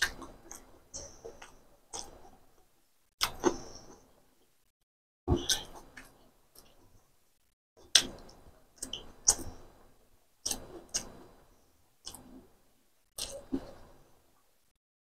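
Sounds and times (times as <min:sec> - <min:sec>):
person chewing food: 0:00.0 - 0:04.6, 0:05.3 - 0:07.0, 0:07.8 - 0:09.8, 0:10.4 - 0:12.5, 0:13.1 - 0:14.1.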